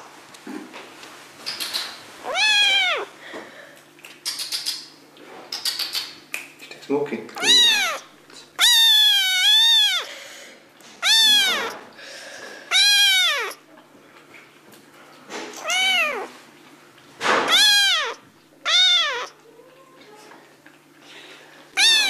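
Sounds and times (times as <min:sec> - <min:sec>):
kitten meowing: 0:02.2 - 0:03.1, 0:07.4 - 0:10.1, 0:11.0 - 0:11.8, 0:12.7 - 0:13.6, 0:15.6 - 0:16.3, 0:17.4 - 0:19.4, 0:21.8 - 0:22.0.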